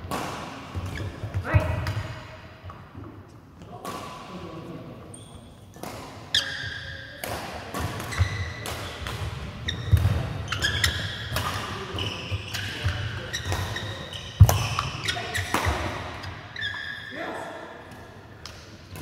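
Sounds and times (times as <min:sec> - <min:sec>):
shoes squeaking on floor: 0:05.1 - 0:05.7, 0:08.1 - 0:17.2.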